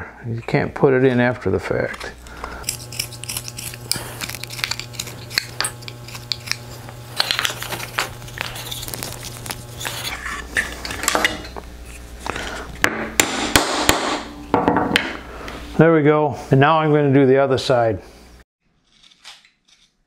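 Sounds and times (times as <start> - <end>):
steady low hum: 0.0 - 15.8
knife scraping wood: 0.4 - 12.8.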